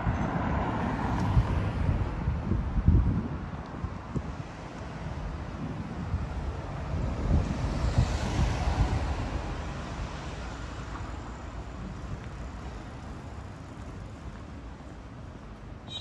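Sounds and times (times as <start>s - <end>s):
wind buffeting microphone: 0.0s - 10.3s
road vehicle passing: 4.3s - 15.8s.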